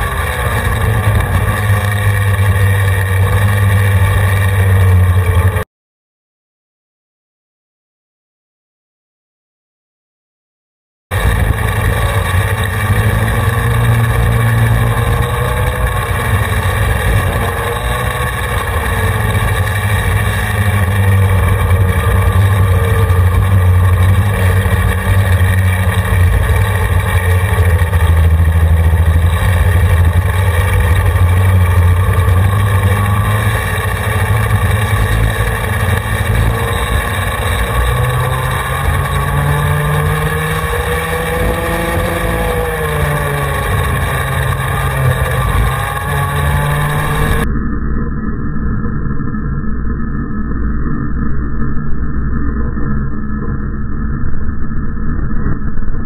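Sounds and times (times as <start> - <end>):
go-kart engine revving: 0.0 - 5.6, 11.1 - 47.4.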